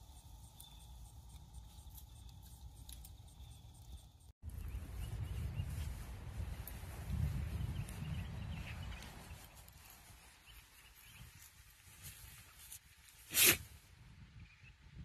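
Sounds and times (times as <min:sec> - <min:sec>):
short sharp hiss: 0:13.2 - 0:13.7.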